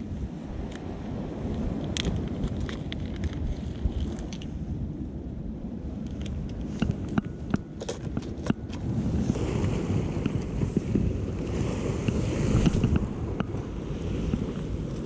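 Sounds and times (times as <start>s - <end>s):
wind buffeting microphone: 0.0s - 15.0s
surf washing against rocks: 8.0s - 15.0s.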